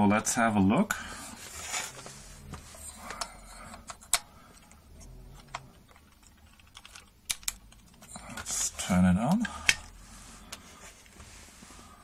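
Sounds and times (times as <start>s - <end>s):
hands rustling circuit board: 1.3s - 12.0s
sharp little clicks and taps: 5.5s - 8.5s.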